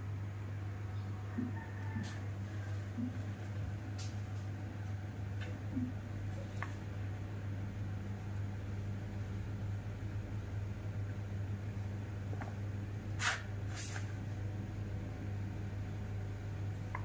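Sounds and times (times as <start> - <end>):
steady low hum: 0.0 - 17.0
knife scraping strokes: 13.2 - 14.1.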